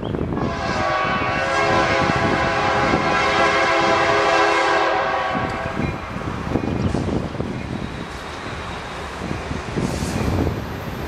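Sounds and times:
locomotive horn blast: 0.4s - 5.8s.

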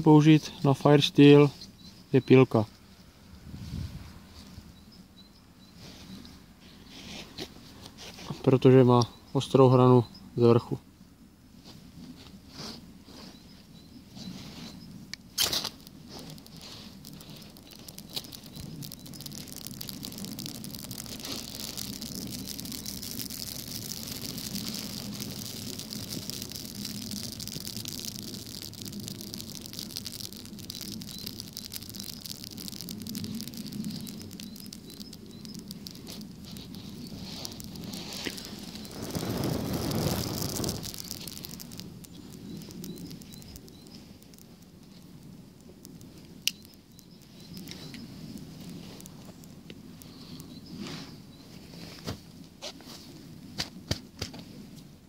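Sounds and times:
fine crackling of flames: 10.5s - 55.0s.

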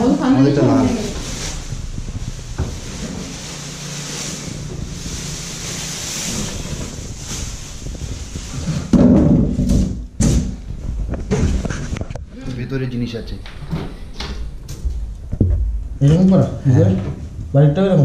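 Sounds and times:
plastic cover rustling: 0.0s - 12.9s
low thuds and knocks: 1.1s - 3.3s, 6.6s - 12.3s, 13.7s - 17.6s.

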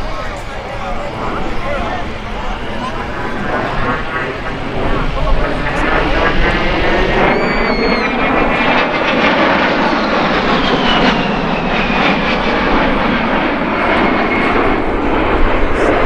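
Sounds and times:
jet roar: 0.0s - 16.0s
high whine sliding down: 5.6s - 8.6s.

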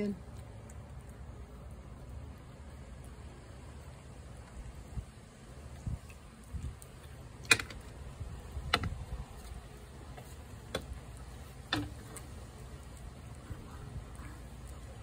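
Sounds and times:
cat chewing and licking: 0.2s - 7.3s.

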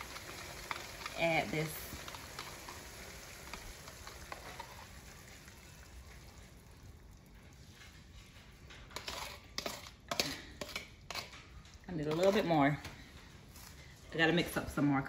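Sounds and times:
chicken sizzling in frying pan: 0.0s - 8.2s
spoon scraping bowl: 4.1s - 5.0s, 8.8s - 12.7s.

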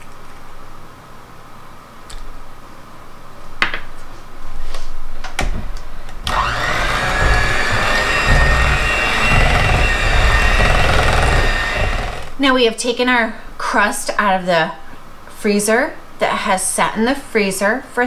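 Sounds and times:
electric hand mixer whining: 6.3s - 12.4s
knocks: 6.3s - 12.4s.

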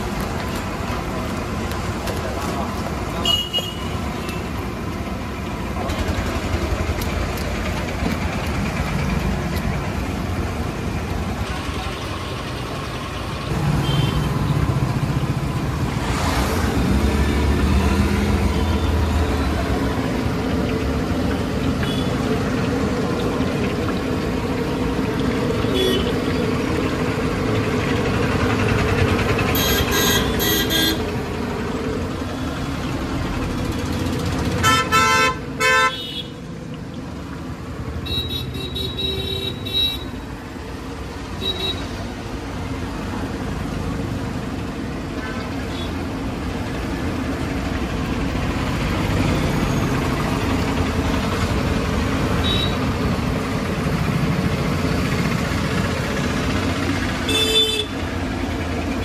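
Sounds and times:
vehicles passing: 0.0s - 59.0s
vehicle horn: 3.2s - 3.9s, 13.8s - 14.3s, 25.7s - 26.1s, 29.5s - 31.0s, 34.6s - 36.3s, 52.4s - 52.8s, 57.3s - 57.9s.

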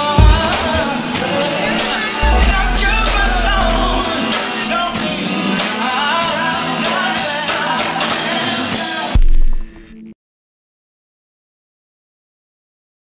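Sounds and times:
man singing: 0.0s - 9.1s
deep bass boom: 1.7s - 5.0s.

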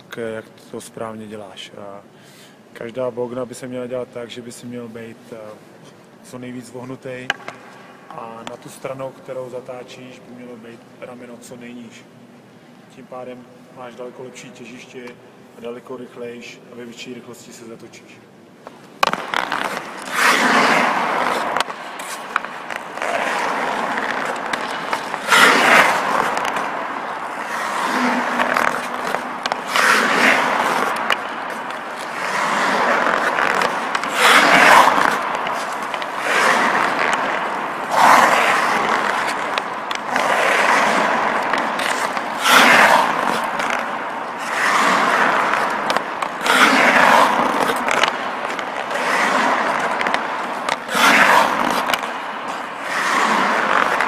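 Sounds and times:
skate blades scraping ice: 18.7s - 54.0s.

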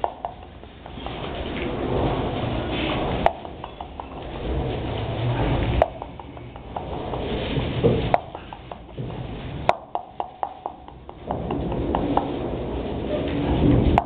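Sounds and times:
sharp clicks and knocks: 0.0s - 14.0s
puppies rustling in straw: 0.8s - 9.7s.

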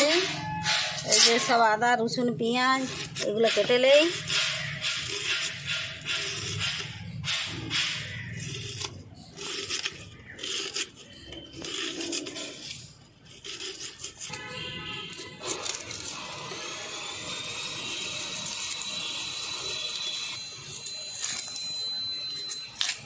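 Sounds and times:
thin high whine: 16.1s - 23.0s.

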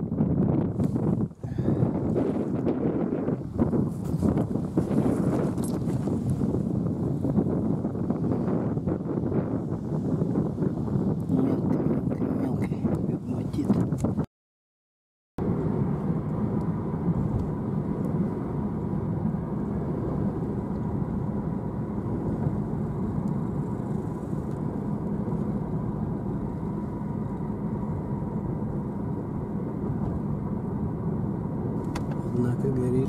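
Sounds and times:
car engine and cabin drone: 0.0s - 14.3s, 15.4s - 33.0s
faint constant whine: 15.4s - 33.0s.

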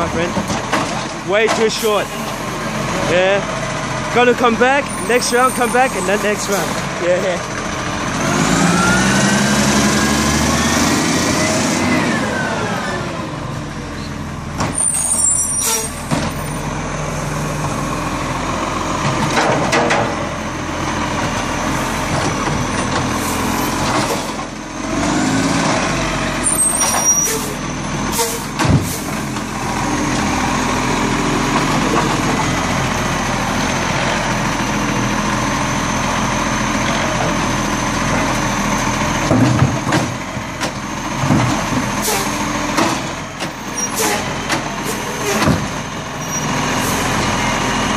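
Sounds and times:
garbage truck engine running: 0.0s - 47.9s
air brakes hissing: 14.8s - 16.1s, 26.4s - 29.1s, 42.0s - 42.4s.

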